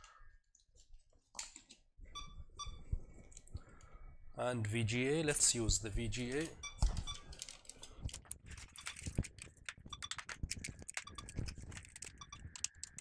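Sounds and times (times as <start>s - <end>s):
cables clicking into computer ports: 1.3s - 1.8s, 6.2s - 13.0s.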